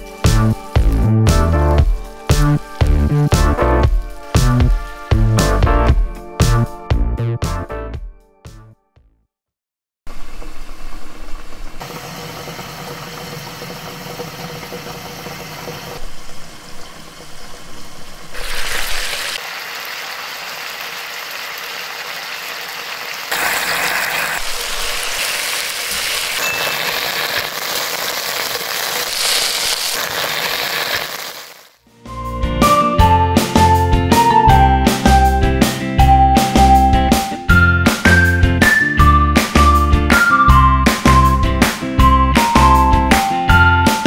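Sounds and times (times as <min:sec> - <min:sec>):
sauce sizzling in a frying pan: 0:00.0 - 0:05.5, 0:18.3 - 0:31.7.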